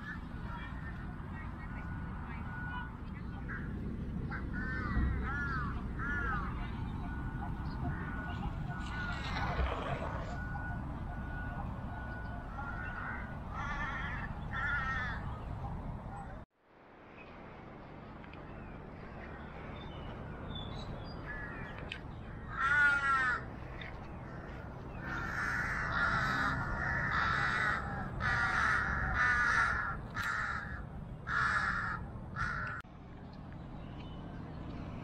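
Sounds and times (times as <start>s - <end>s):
crows cawing: 4.3s - 6.5s, 12.5s - 15.3s, 21.3s - 21.7s, 22.3s - 23.5s, 24.2s - 32.8s.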